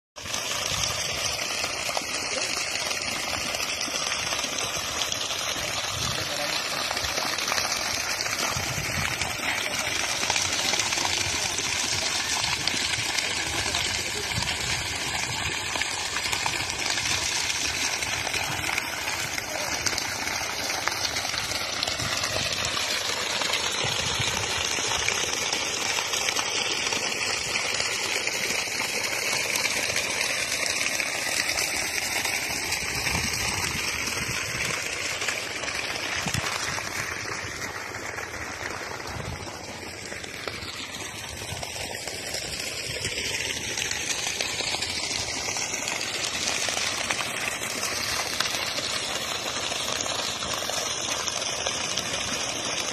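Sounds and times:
water gushing from pipe: 0.2 - 52.9
water splashing on ground: 0.2 - 52.9.

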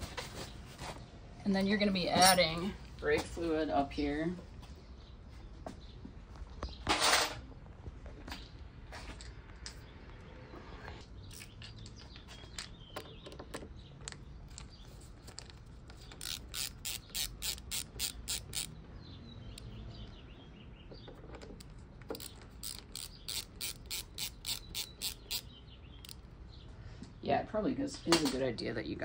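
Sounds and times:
ratcheting screwdriver clicking: 15.4 - 18.7, 21.6 - 26.2.

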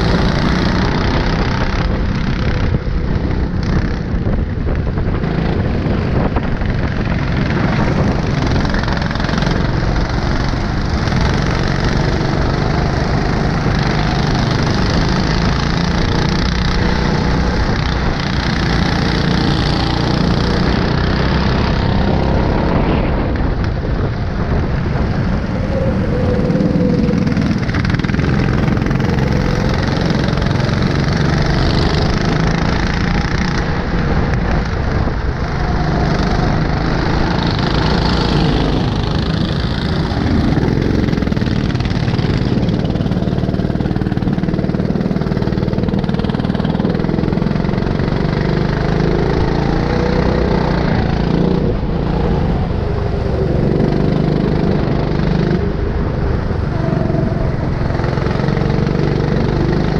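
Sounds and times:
go-kart engine revving: 0.0 - 59.9.

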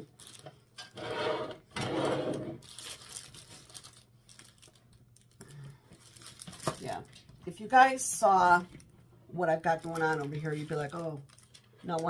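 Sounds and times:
packaging rustling and crinkling: 0.0 - 0.6, 2.6 - 7.4, 9.6 - 12.0.

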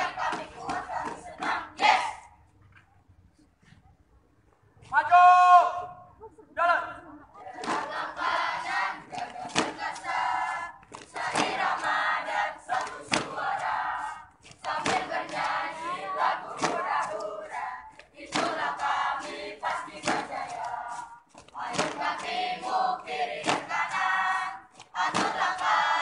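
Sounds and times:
marchers chanting in unison: 0.0 - 2.4, 7.4 - 26.0
sharp rhythmic impact: 7.6 - 26.0.

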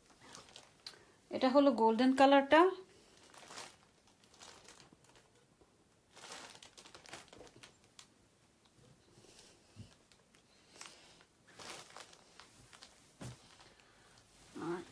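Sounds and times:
faint cloth rustling: 2.8 - 5.3, 6.1 - 14.9.

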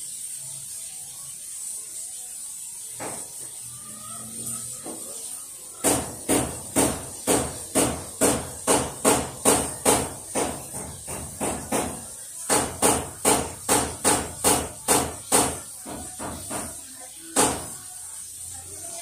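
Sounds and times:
sharp knocks: 5.8 - 16.7.

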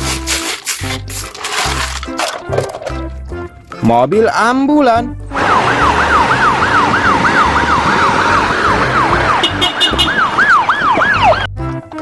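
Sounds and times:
ambulance siren yelping: 5.4 - 11.5.

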